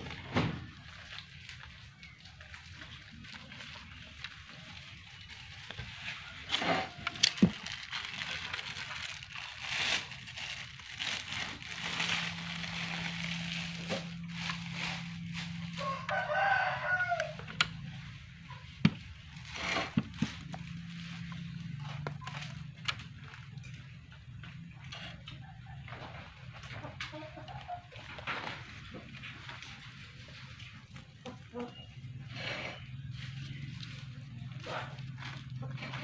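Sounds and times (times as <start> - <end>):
low hum: 7.6 - 16.1.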